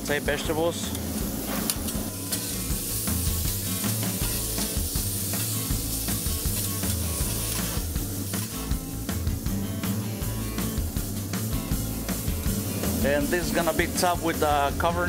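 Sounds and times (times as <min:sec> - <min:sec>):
food sizzling on a griddle: 0:00.0 - 0:15.0
metal spatula scraping griddle: 0:01.3 - 0:08.6.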